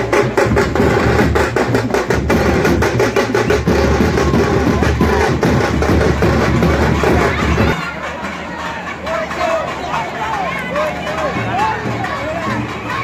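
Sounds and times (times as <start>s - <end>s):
frame drums beating fast rhythm: 0.0s - 7.9s.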